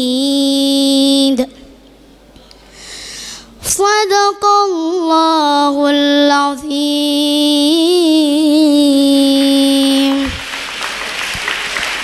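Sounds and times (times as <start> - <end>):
boy chanting recitation: 0.0 - 1.6, 3.6 - 10.4
audience applause: 10.1 - 12.0.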